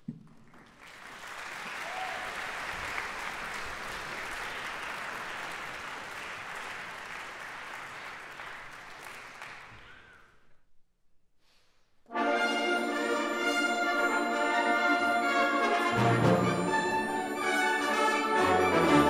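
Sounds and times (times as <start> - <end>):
audience applauding: 0.3 - 10.2.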